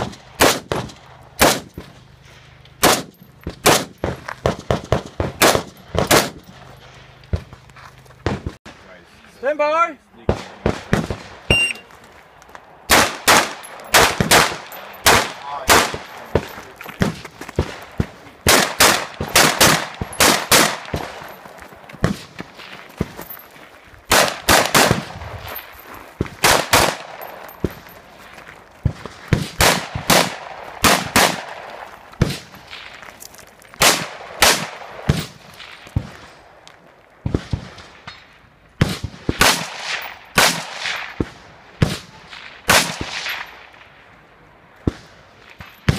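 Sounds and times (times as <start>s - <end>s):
rifle shots with echo: 0.0s - 1.8s, 2.8s - 6.6s, 10.2s - 11.8s, 12.9s - 21.4s, 24.1s - 25.6s, 26.4s - 27.8s, 28.8s - 33.0s, 33.8s - 36.6s, 37.2s - 44.0s.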